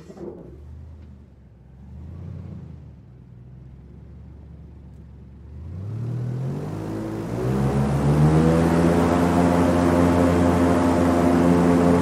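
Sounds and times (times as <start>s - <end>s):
hovercraft engine revving: 5.6s - 12.0s.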